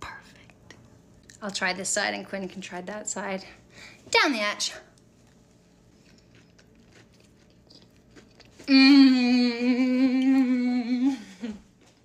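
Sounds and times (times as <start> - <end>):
faint chewing: 4.9 - 8.7
woman humming mmm: 8.6 - 11.7.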